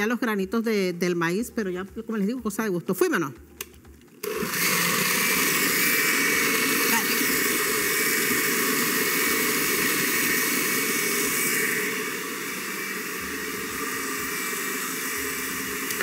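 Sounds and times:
kitchen blender running: 4.2s - 16.0s.

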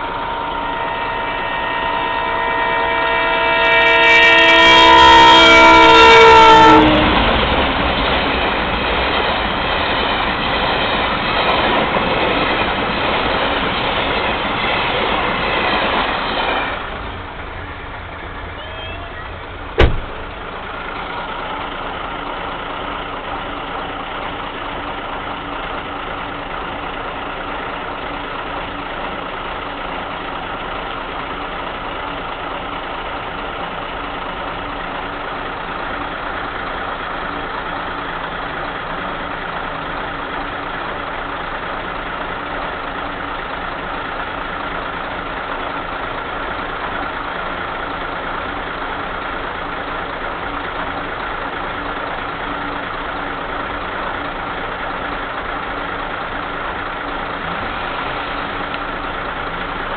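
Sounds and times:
loud multi-tone horn: 0.0s - 7.3s
sharp knock: 19.8s - 20.3s.

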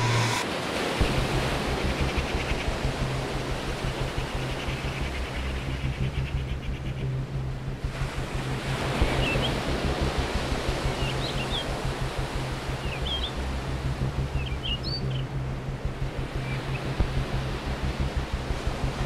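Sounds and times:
surf-like wash of noise: 0.0s - 5.7s, 7.8s - 14.6s
low sustained hum: 0.0s - 19.0s.

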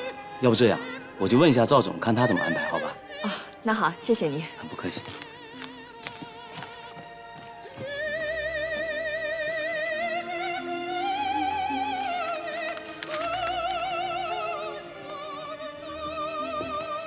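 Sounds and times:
woman singing operatically: 7.6s - 17.0s.

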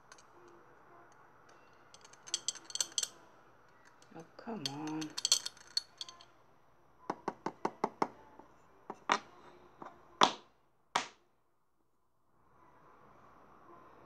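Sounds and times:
hard objects knocking: 7.1s - 8.2s, 8.9s - 10.4s.

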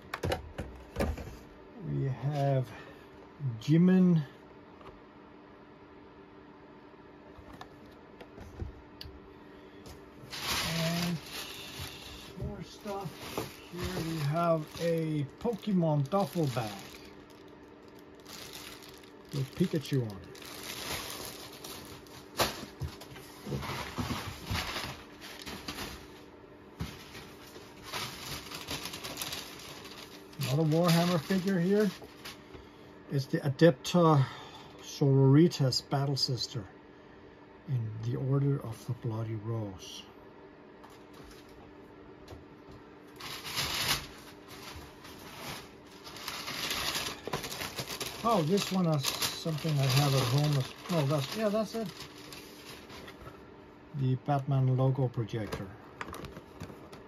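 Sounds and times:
plastic bags rustling: 10.2s - 32.5s, 43.1s - 53.4s.

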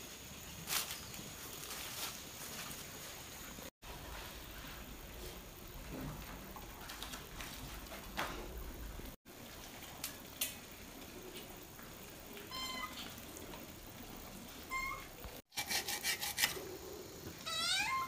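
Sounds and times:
food preparation handling noises: 0.6s - 8.9s
cat meowing: 17.4s - 18.0s.

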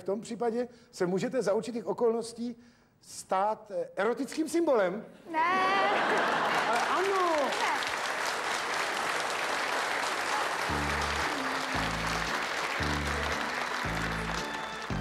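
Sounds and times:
audience applauding: 5.7s - 15.0s.

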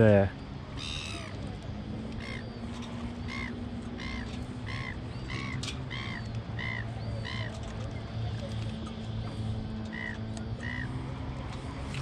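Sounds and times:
bird calling: 0.4s - 8.1s, 9.8s - 11.0s.

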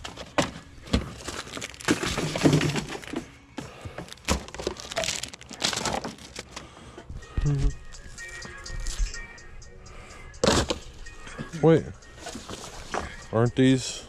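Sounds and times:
crinkling and rustling: 0.0s - 6.7s
hard objects clacking and knocking: 0.3s - 3.3s.

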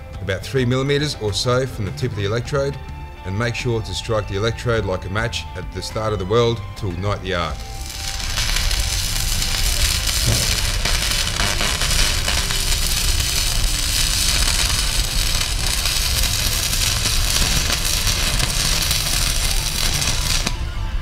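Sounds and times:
welding arc crackling hiss: 7.5s - 20.6s.

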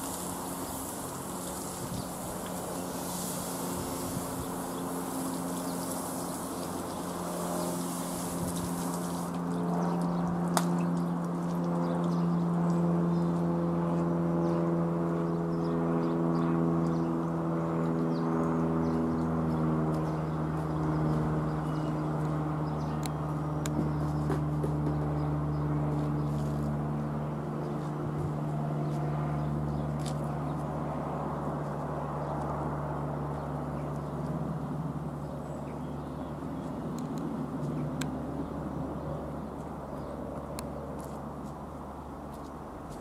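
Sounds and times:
light aircraft engine droning: 0.0s - 43.0s.

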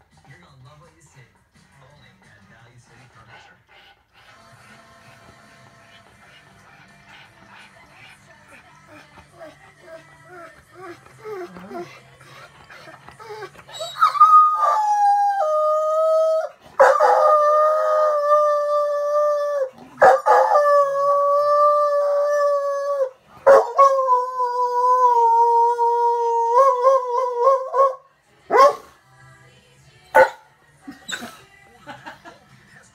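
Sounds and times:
dog howling: 8.9s - 28.8s.

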